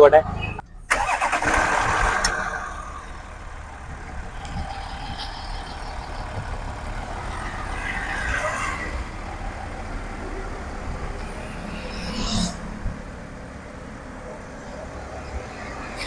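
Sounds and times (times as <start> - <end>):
diesel engine idling: 0.8 - 7.8.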